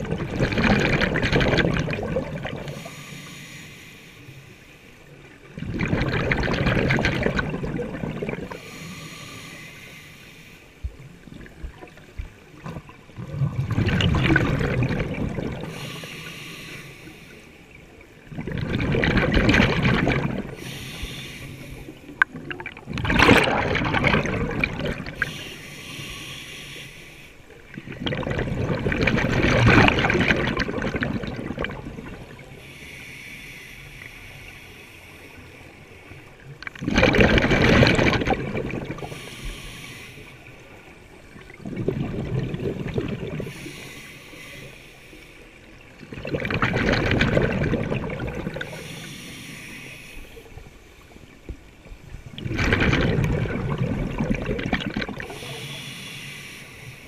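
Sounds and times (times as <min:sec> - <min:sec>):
underwater exhaled bubbles rushing: 0:00.0 - 0:02.9, 0:05.4 - 0:08.9, 0:10.8 - 0:16.0, 0:17.9 - 0:26.3, 0:27.6 - 0:33.0, 0:36.4 - 0:44.4, 0:45.7 - 0:49.2, 0:50.4 - 0:56.0
scuba regulator hiss: 0:02.7 - 0:04.8, 0:08.6 - 0:10.8, 0:15.6 - 0:17.4, 0:20.6 - 0:22.0, 0:25.2 - 0:27.4, 0:32.6 - 0:36.2, 0:39.0 - 0:40.4, 0:43.5 - 0:45.5, 0:48.6 - 0:50.5, 0:55.2 - 0:57.0.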